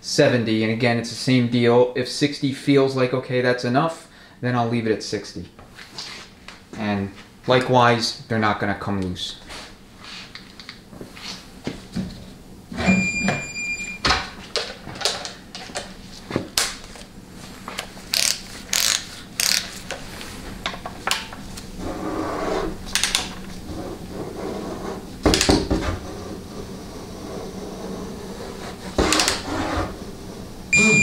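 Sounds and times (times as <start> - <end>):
short electronic beep: 12.8 - 14.0, 30.7 - 31.0
torque wrench ratcheting: 18.1 - 19.7.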